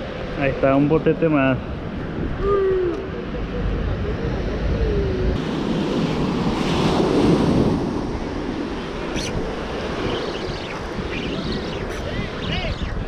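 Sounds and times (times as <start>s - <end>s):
wind on microphone: 1.5s - 13.0s
waves breaking on shore: 5.4s - 13.0s.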